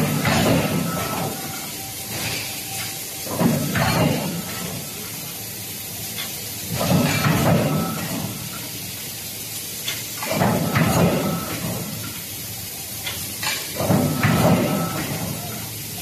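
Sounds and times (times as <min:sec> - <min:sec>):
forging press hiss and clatter: 0:00.0 - 0:16.0.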